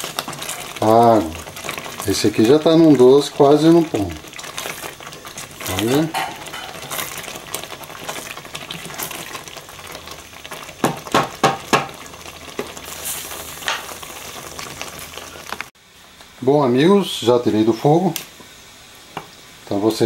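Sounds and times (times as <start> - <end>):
jam bubbling and popping: 0.0 - 15.8.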